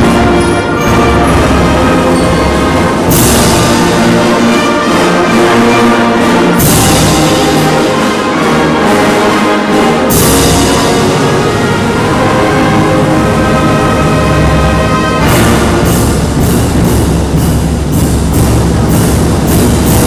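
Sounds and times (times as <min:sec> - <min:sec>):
wind band playing: 0:00.0 - 0:20.0.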